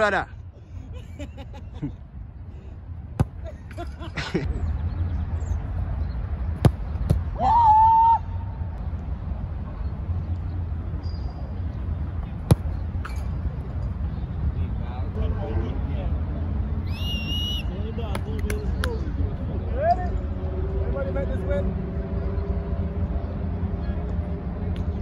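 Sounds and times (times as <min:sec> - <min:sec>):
ball kicked hard: 0:03.2 - 0:03.4, 0:06.6 - 0:07.3, 0:12.4 - 0:12.8.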